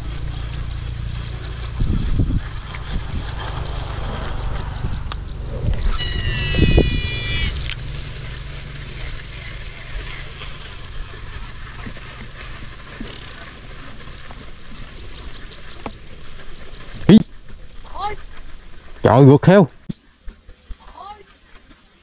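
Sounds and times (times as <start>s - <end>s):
steady low rumble: 0.0s - 11.8s
loud low thump: 2.4s - 7.0s
fishing reel spool whine: 2.4s - 11.8s.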